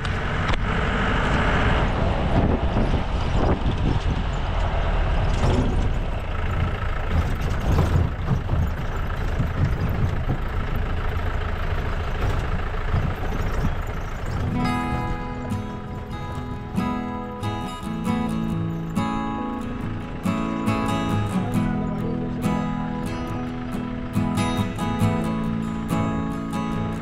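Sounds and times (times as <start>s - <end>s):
vehicle engine and road rumble: 0.0s - 27.0s
vehicle knocks and jolts: 2.2s - 16.4s.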